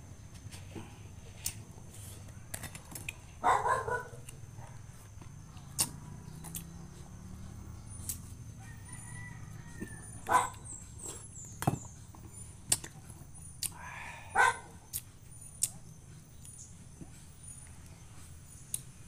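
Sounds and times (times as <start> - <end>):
rooster crowing: 8.4 - 10.6.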